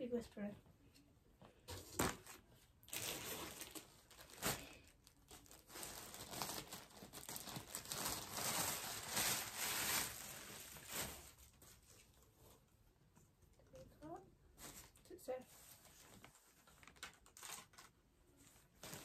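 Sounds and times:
plastic bag crinkling: 2.8 - 12.2, 15.8 - 18.0.

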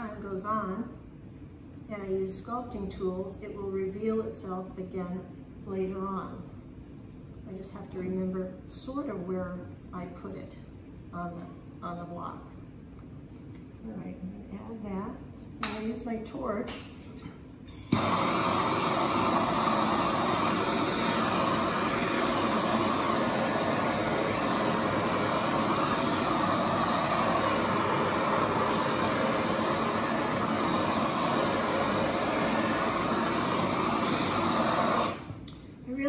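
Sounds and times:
torch flame hissing: 17.6 - 35.5
gas torch ignition click: 17.8 - 35.7.

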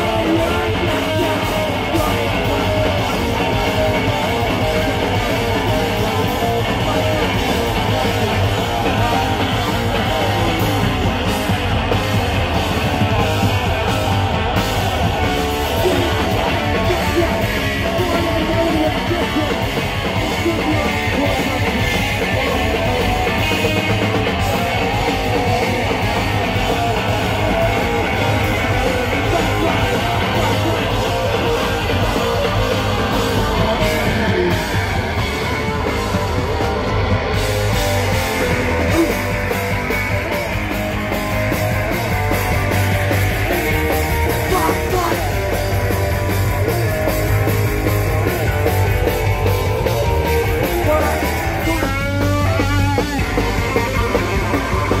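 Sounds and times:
punk band playing live: 0.0 - 55.0.

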